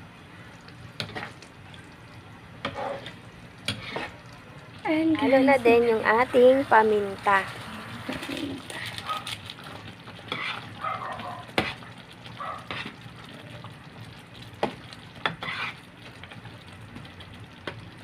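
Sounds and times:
spatula stirring thick sauce: 2.6 - 4.2, 8.5 - 13.8, 14.4 - 17.8.

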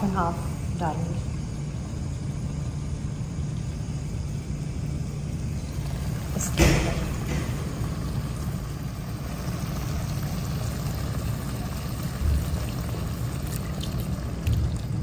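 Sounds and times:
low rumble of gas stove: 0.0 - 15.0
cream pouring into pan: 7.7 - 15.0.

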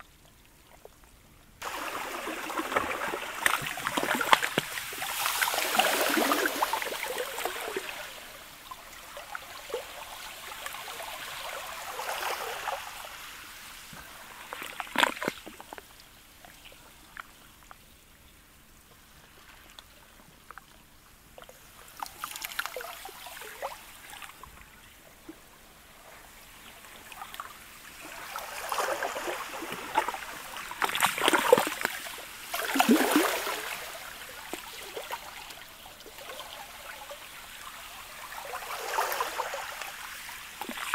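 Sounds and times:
sharp splash: 1.6 - 7.9, 30.8 - 34.0
slushy ice washing on shore: 1.6 - 8.3, 28.2 - 35.1.

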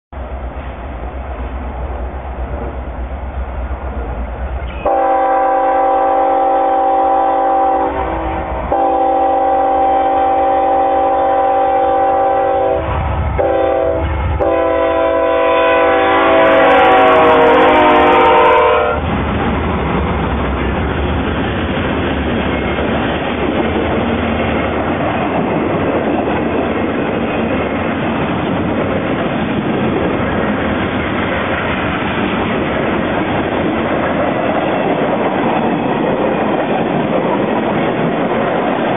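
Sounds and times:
freight train wheels on rail: 0.1 - 38.9
locomotive air horn: 4.7 - 19.0.

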